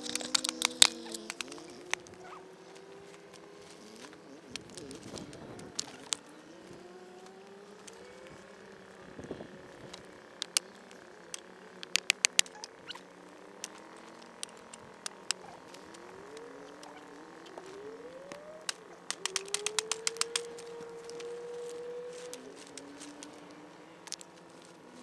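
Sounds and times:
fire crackling and popping: 0:00.0 - 0:02.2, 0:09.9 - 0:13.0, 0:13.6 - 0:21.2.

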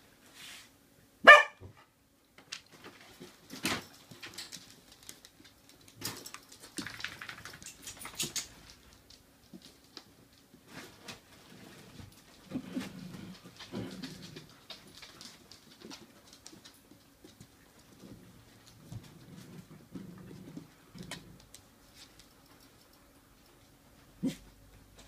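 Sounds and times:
dog barking: 0:01.2 - 0:01.7
dogs play-wrestling clicks and rustles: 0:02.4 - 0:25.0.

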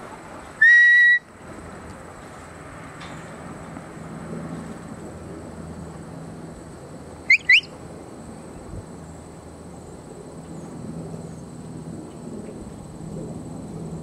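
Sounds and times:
rising whistle notes: 0:00.6 - 0:01.3
steady low hum: 0:01.2 - 0:14.0.

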